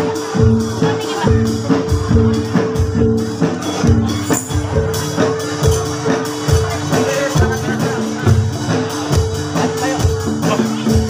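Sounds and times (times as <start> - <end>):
metallophone notes ringing: 0.0 - 8.4
low drum strokes: 0.0 - 11.0.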